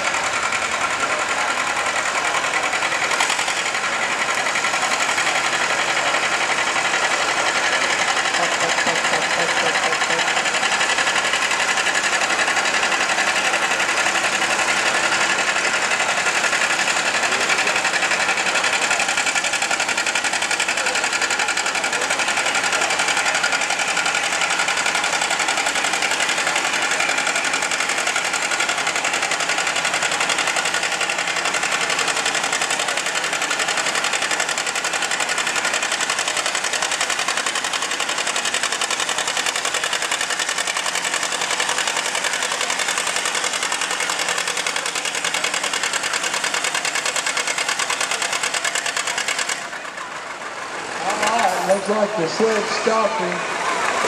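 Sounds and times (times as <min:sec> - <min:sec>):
tractor engine running at low speed: 0:00.0 - 0:54.0.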